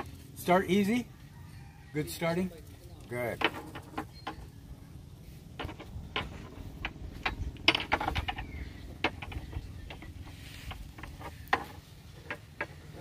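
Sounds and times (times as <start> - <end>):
metallic clicks and knocks: 3.2 - 4.5, 5.6 - 13.0.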